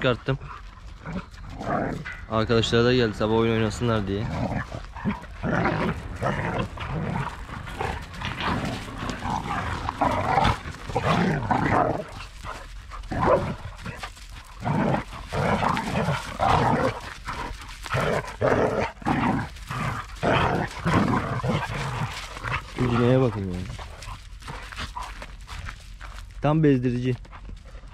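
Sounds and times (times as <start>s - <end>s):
dogs growling: 0.0s - 26.4s
dogs barking: 3.6s - 25.7s.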